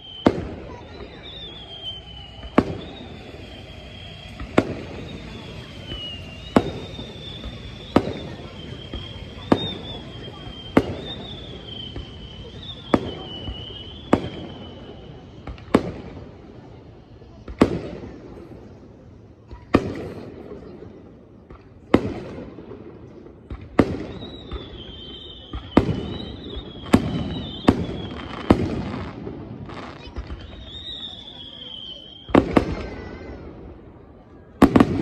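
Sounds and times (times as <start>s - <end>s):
firework shells bursting: 0.0s - 16.2s
echoing rumble: 0.1s - 15.4s.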